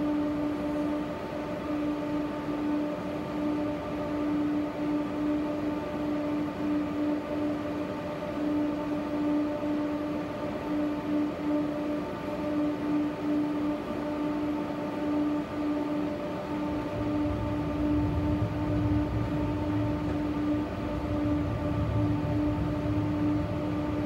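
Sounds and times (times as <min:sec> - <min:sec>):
fluttering electric hum: 0:13.6 - 0:24.0
tram running rumble: 0:16.7 - 0:24.0.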